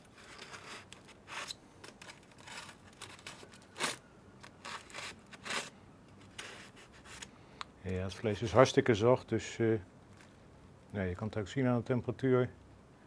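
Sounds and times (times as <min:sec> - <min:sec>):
aluminium foil crinkling: 0:00.0 - 0:07.3.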